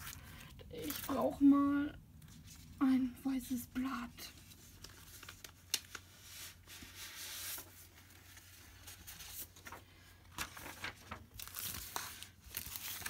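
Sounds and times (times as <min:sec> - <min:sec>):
paper rustling: 0:04.3 - 0:13.0.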